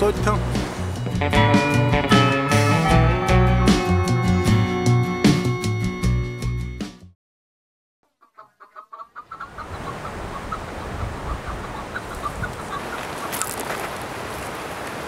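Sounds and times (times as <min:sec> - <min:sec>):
background music: 0:00.0 - 0:07.1
bird clucking calls: 0:08.1 - 0:13.5.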